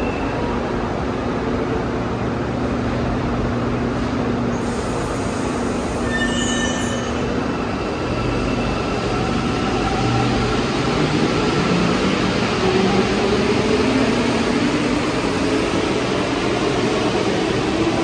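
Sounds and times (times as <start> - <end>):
short high squealing tones: 6.0 - 7.3.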